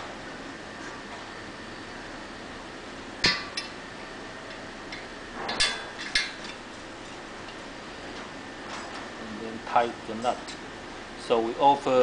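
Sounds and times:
metal bolt clinking against frame: 4.9s - 6.6s.

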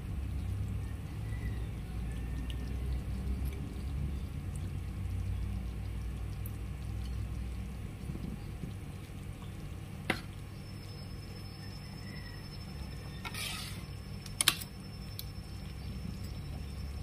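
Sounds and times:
stove flame hum: 0.0s - 17.0s
spoon scraping pan: 13.1s - 13.9s.

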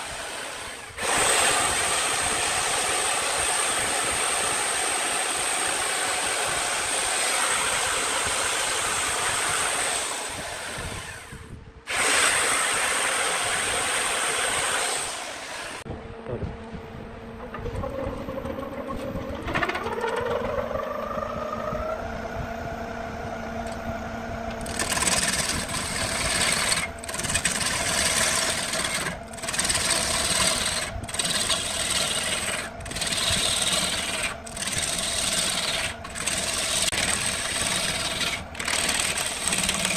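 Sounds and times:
chainsaw cutting log: 0.0s - 15.8s, 24.6s - 39.9s
gouge cutting spinning wood: 0.0s - 15.9s, 24.5s - 39.9s
lathe motor running: 0.0s - 15.9s, 17.1s - 39.9s.

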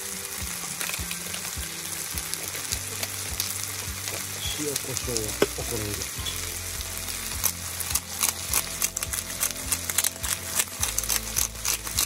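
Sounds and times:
fat spitting and crackling: 0.0s - 12.0s
food sizzling in skillet: 0.0s - 12.0s.

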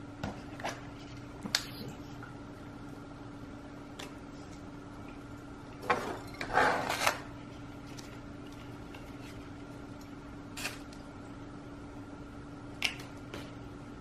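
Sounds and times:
faint steady hum: 0.0s - 14.0s
clay pot scraping on plastic tray: 5.9s - 7.2s.

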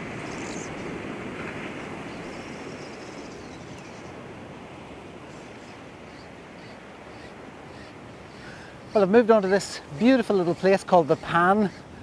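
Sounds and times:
surf washing against rocks: 0.0s - 6.0s.

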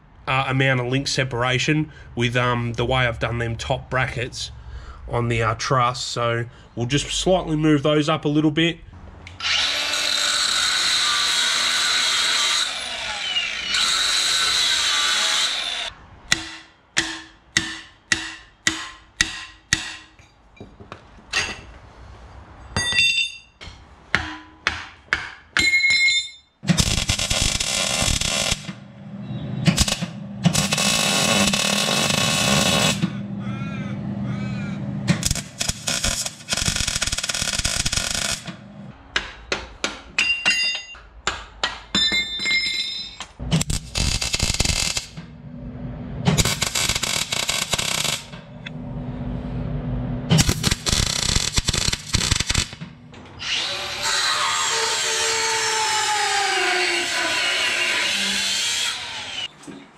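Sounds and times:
power tool running: 9.4s - 15.9s, 29.7s - 33.3s
welding: 26.7s - 28.8s, 29.6s - 33.1s, 35.1s - 38.6s, 43.5s - 45.3s, 46.4s - 48.5s, 50.3s - 52.8s
metal knocks and clinks: 40.2s - 43.4s.

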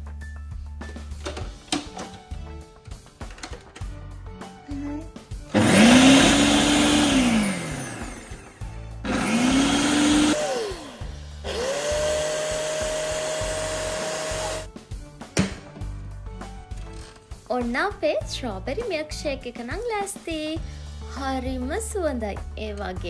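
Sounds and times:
electric blender motor: 5.5s - 14.7s.

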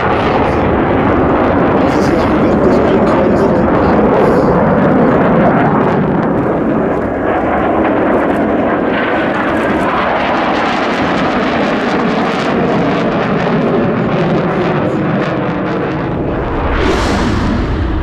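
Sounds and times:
jet engine roar with whine: 0.0s - 18.0s.

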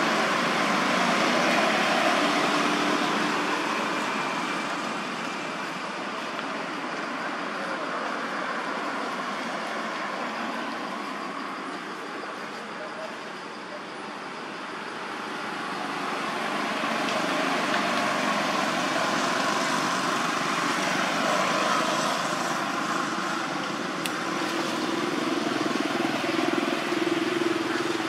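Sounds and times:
motor traffic noise: 0.0s - 28.0s.

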